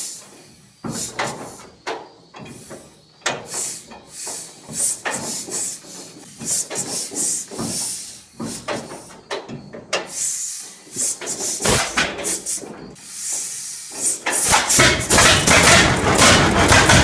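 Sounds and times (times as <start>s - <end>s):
engine hissing puffs: 0.0s - 17.0s
sharp clicks and knocks: 0.8s - 10.2s, 14.2s - 17.0s.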